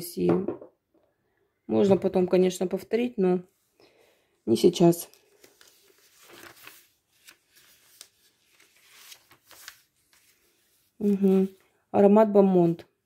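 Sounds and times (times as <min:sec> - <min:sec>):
catalogue pages rustling: 0:04.9 - 0:11.7.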